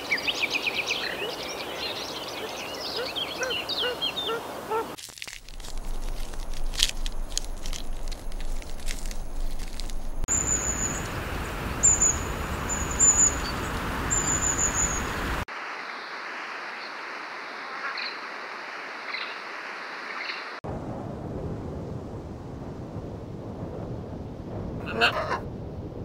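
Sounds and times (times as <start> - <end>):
steady background hiss: 9.2 - 20.6
high thin bird chirping: 10.1 - 15.4.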